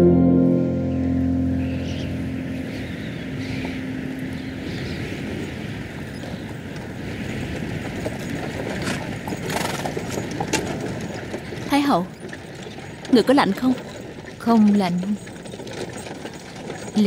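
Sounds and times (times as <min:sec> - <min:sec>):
held music chord: 0:00.0 - 0:06.1
horse-drawn carriage rolling: 0:01.8 - 0:17.0
horses' hooves on dirt: 0:02.7 - 0:17.0.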